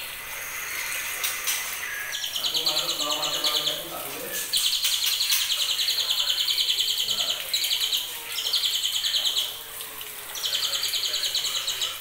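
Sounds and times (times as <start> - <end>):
bird singing rattling trills: 0.7 - 9.6, 10.3 - 12.0.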